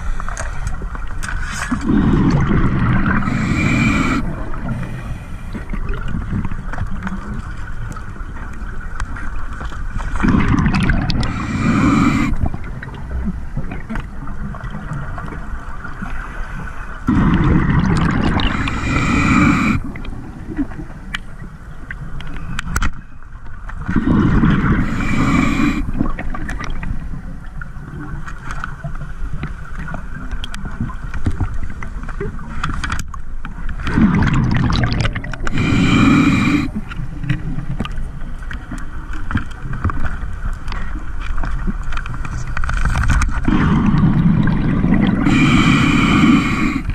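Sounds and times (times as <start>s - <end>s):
diver breathing through regulator: 0.0s - 5.8s, 10.8s - 12.6s, 16.4s - 20.8s, 23.9s - 26.0s, 34.8s - 37.0s, 43.5s - 46.9s
gush of exhaled bubbles: 1.4s - 6.6s, 10.2s - 12.9s, 17.0s - 20.9s, 23.9s - 26.8s, 33.8s - 36.9s, 43.4s - 46.9s.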